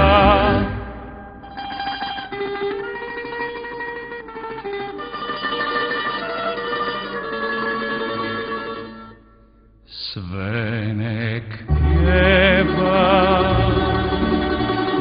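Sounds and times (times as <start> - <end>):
string band playing: 0.0 - 2.1, 11.7 - 15.0.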